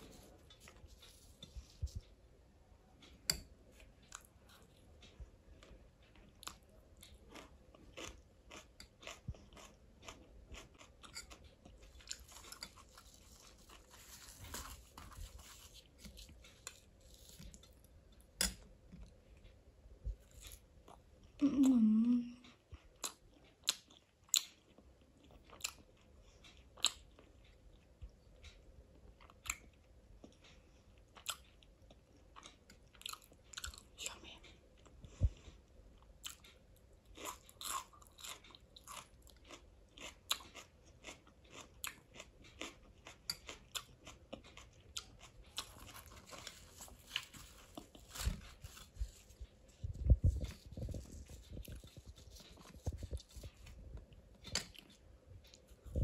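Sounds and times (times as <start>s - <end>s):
crunchy chewing: 4.0s - 17.9s, 34.8s - 56.0s
person humming briefly: 21.4s - 22.4s.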